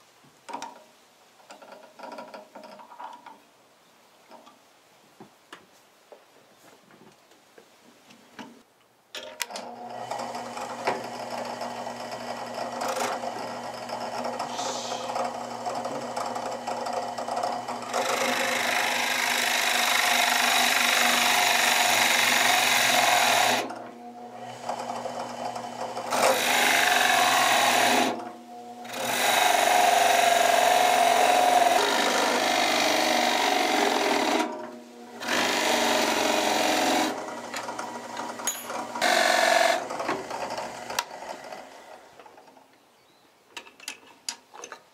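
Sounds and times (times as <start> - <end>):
drill bit grinding into wood: 9.9 - 23.8, 24.4 - 41.6
drill press motor hum: 9.9 - 41.7.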